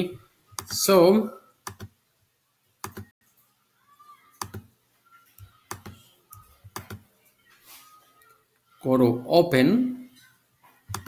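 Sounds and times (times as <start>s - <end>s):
mouse and keyboard clicking: 1.6s - 1.9s, 2.8s - 3.1s, 4.4s - 4.7s, 5.4s - 7.0s.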